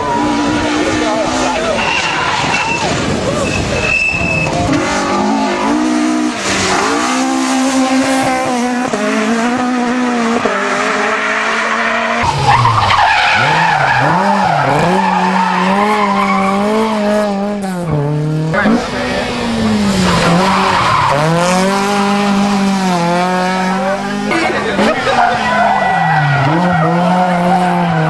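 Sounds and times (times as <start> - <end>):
rally car engines revving: 0.0 - 28.0.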